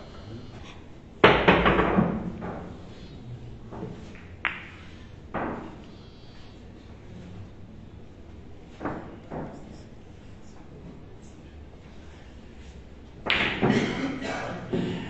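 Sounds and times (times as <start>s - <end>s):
billiard balls rolling: 1.3s - 3.0s, 3.6s - 5.9s
billiard balls clicking: 3.7s - 6.0s.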